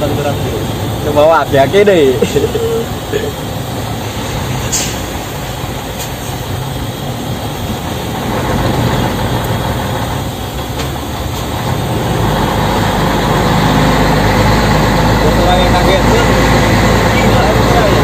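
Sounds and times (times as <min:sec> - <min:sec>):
truck diesel engine under load: 0:00.0 - 0:18.0.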